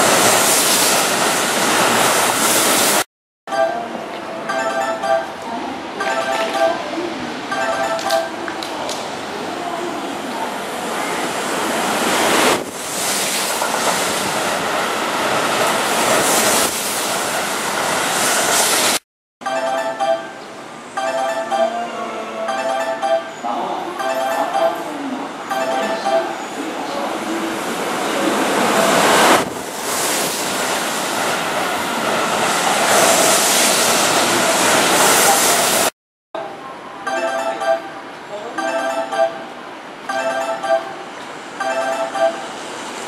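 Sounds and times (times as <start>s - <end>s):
train wheels on rails: 0.0s - 3.0s, 8.5s - 19.0s, 26.7s - 35.9s.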